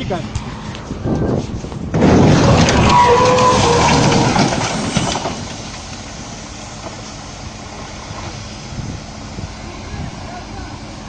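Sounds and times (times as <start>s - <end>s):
loud rough noise with clicks: 1.7s - 6.2s.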